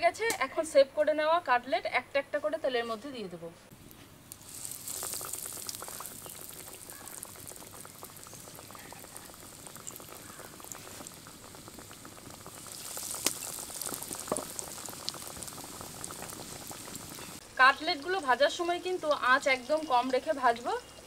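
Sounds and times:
chicken sizzling in hot oil: 0:04.3 - 0:21.0.

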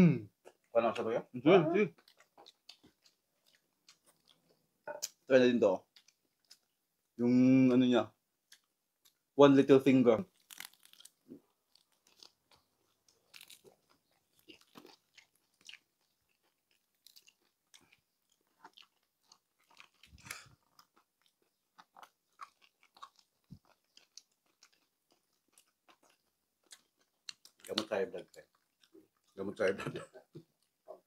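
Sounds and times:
crunching and chewing fried pork: 0:02.0 - 0:04.6, 0:10.2 - 0:29.5.

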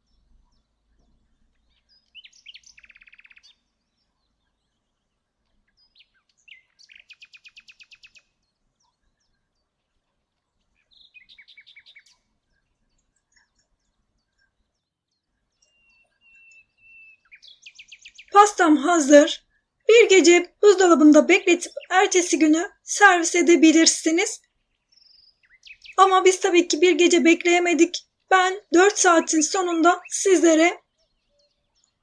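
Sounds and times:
songbird trilled chirps: 0:00.0 - 0:05.1, 0:05.7 - 0:09.7, 0:10.8 - 0:18.4, 0:24.4 - 0:26.0.

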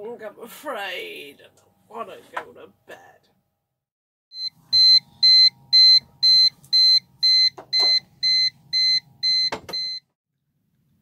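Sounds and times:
high-pitched alarm beeping: 0:04.4 - 0:10.0.

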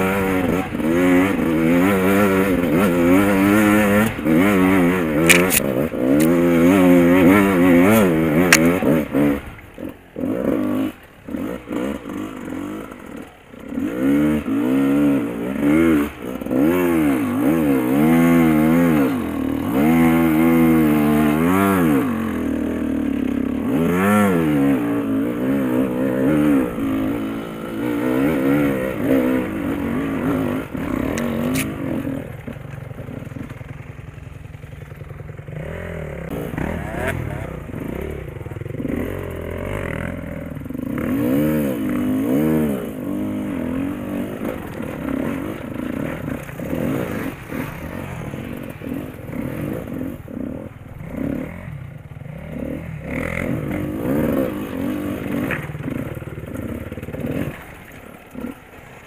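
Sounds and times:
dirt bike engine revving: 0:00.0 - 0:59.0
stones clattering: 0:05.3 - 0:06.3.

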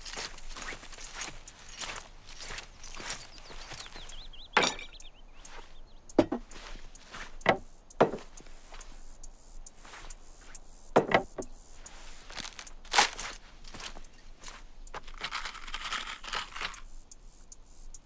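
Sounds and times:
bird trill: 0:00.0 - 0:08.0
footsteps on grass: 0:00.0 - 0:17.0
wooden knocks on a table: 0:06.2 - 0:06.5, 0:07.4 - 0:08.3, 0:11.0 - 0:11.5.

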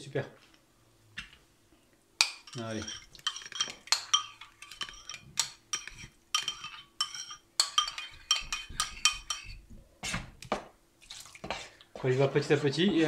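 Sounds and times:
metal spoon scraping ceramic bowl: 0:02.2 - 0:09.6.

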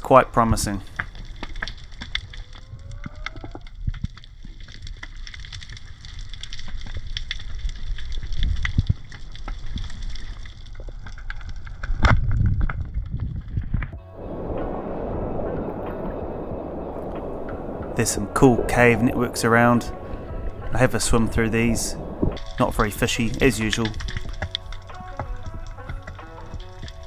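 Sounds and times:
low rumble of moving water: 0:00.0 - 0:27.0
underwater crackle of small clicks: 0:00.7 - 0:14.0, 0:21.3 - 0:27.0
low water rush with sharp click: 0:14.1 - 0:27.0.

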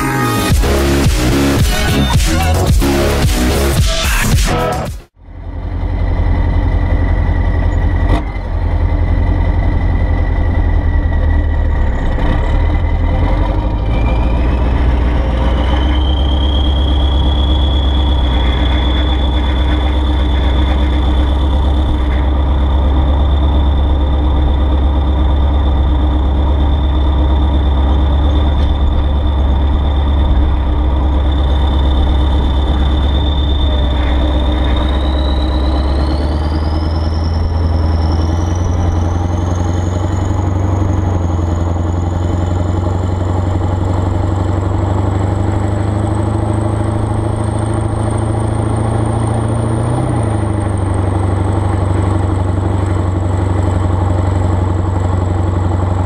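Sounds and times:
diesel engine running: 0:00.0 - 0:56.0
thin high whistle: 0:13.8 - 0:42.4.

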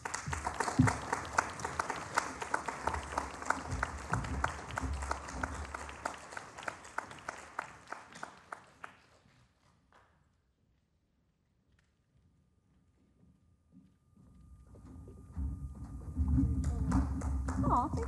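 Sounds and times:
audience applauding: 0:00.0 - 0:09.7, 0:16.4 - 0:18.0.

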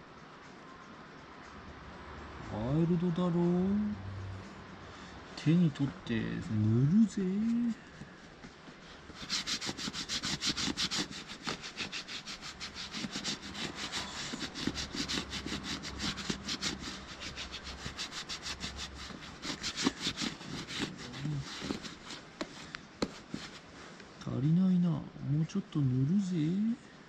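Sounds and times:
hand rubbing leather: 0:06.6 - 0:24.0.

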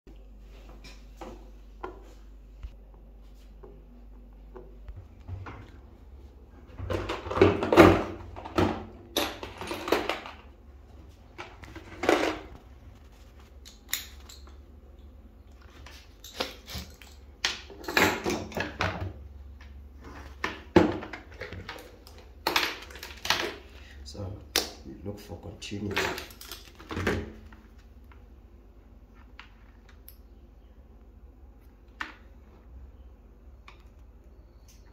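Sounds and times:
metal tools clinking: 0:15.8 - 0:18.6.

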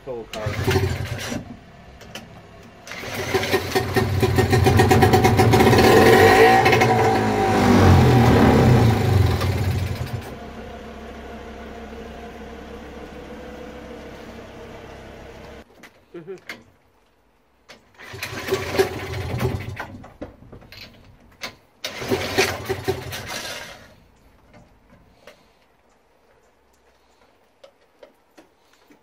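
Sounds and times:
outboard motor running: 0:02.9 - 0:15.6.

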